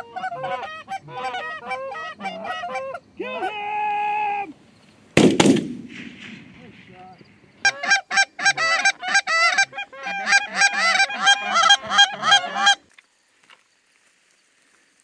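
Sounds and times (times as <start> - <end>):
goose call honks and clucks: 0.0 - 3.6, 7.6 - 12.8.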